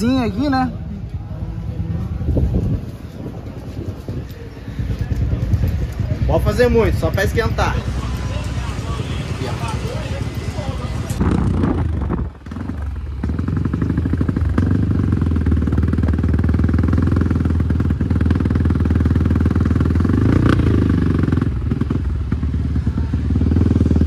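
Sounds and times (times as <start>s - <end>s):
motocross bike engine running: 4.9s - 24.0s.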